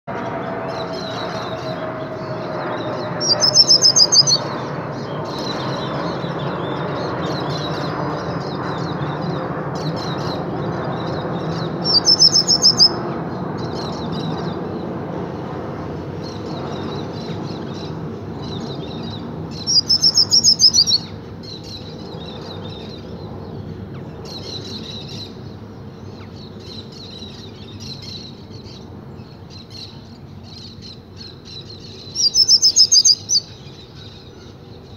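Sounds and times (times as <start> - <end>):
bird ringing song phrases: 0.1 - 9.2, 9.9 - 13.0, 17.9 - 23.0, 30.6 - 34.4
small bird twittering: 0.7 - 9.0, 11.0 - 13.0, 16.6 - 23.0, 31.2 - 34.4.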